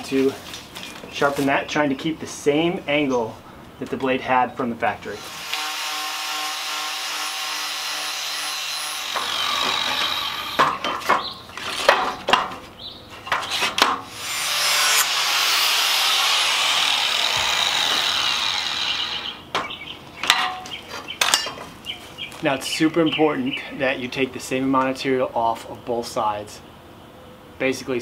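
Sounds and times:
angle grinder grinding steel: 5.2s - 10.8s, 14.1s - 19.5s.

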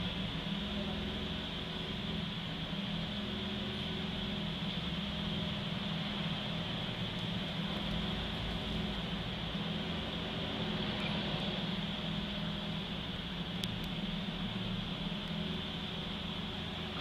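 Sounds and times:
idling cars and machinery hum: 0.0s - 17.0s.

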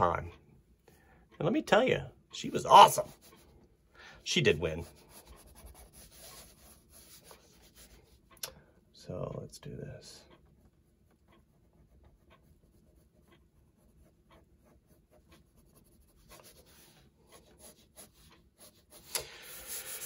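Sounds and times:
pencil scratching on paper: 2.7s - 3.5s, 4.4s - 8.2s, 10.6s - 20.0s.

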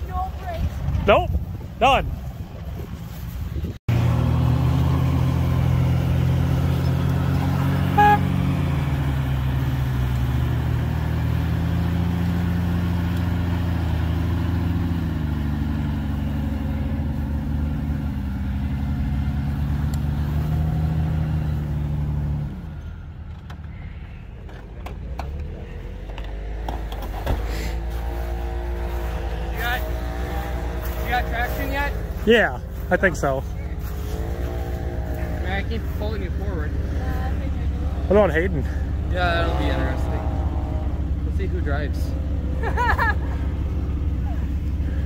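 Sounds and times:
car engine running at low speed: 0.1s - 45.0s
car horn toot: 7.8s - 8.5s.

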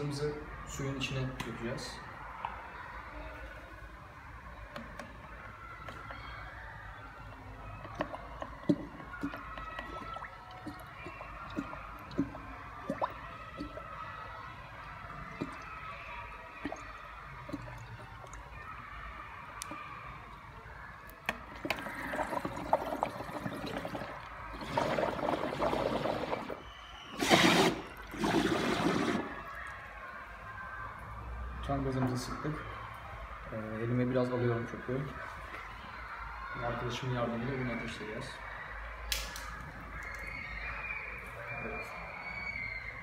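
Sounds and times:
gas bubbling through water: 7.9s - 13.9s, 21.5s - 26.6s, 27.2s - 29.4s
gas gushing and gurgling: 21.5s - 29.4s.

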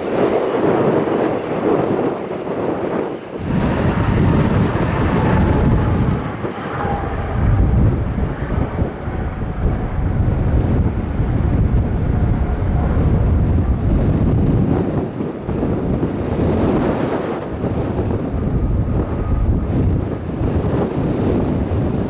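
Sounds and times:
faint engine whine: 0.0s - 22.0s
jet engines rumbling: 0.0s - 22.0s.

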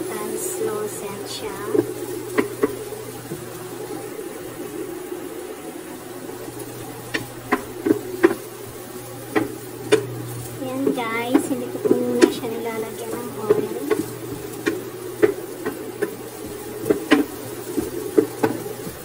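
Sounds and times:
steady low buzz: 0.0s - 19.0s
spatula knocking frying pan: 9.3s - 10.1s.

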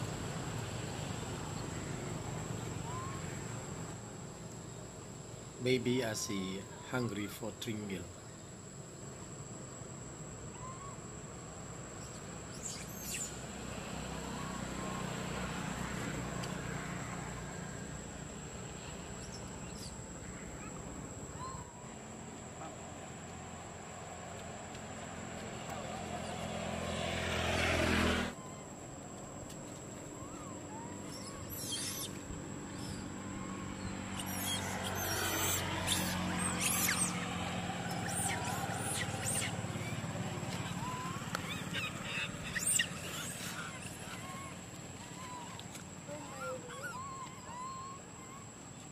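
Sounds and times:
bird chirps: 12.0s - 13.4s, 30.2s - 37.3s
animal squeaks or chirps: 30.2s - 32.2s, 34.2s - 37.3s, 37.9s - 39.6s, 40.7s - 44.5s.

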